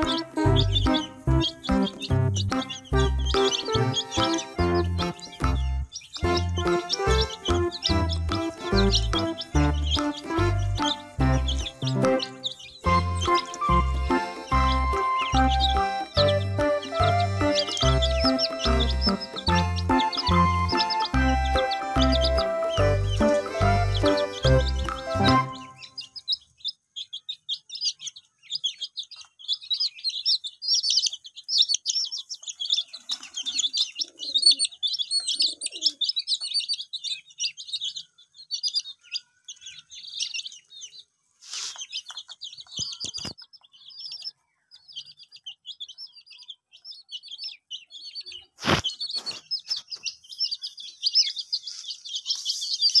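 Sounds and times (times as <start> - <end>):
chicks and ducklings peeping: 0.0 - 53.0.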